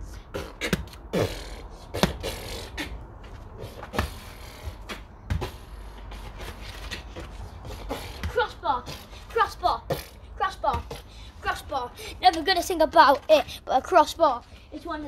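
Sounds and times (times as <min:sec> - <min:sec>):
child beatboxing: 0:00.0 - 0:15.0.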